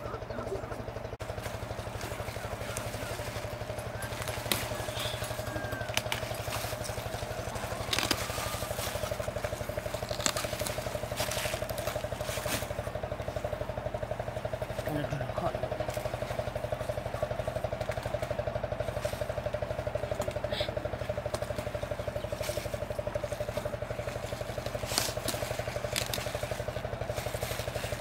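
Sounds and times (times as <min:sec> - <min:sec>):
pulsing motor drone: 0:00.0 - 0:28.0
leaves and stems snapping: 0:01.4 - 0:13.5, 0:21.3 - 0:28.0.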